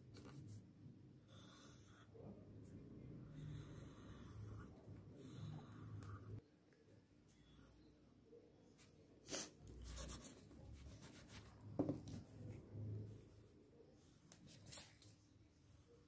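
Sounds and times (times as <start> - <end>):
pencil sketching on paper: 3.2 - 6.4, 9.3 - 16.0.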